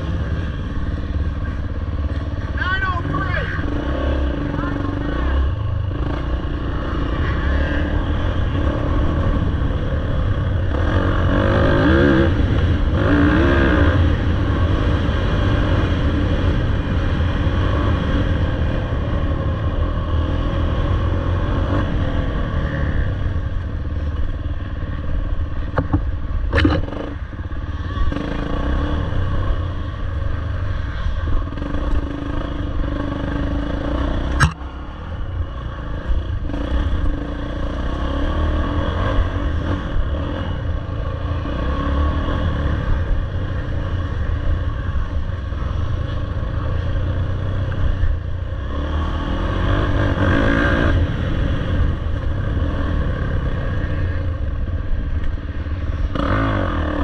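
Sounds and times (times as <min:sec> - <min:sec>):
dirt bike engine revving: 0:03.0 - 0:23.1, 0:48.6 - 0:54.2.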